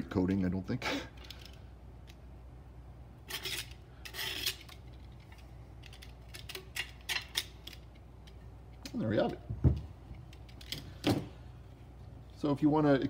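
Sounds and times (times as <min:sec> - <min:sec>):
knife scratching grip tape: 0:03.2 - 0:04.9.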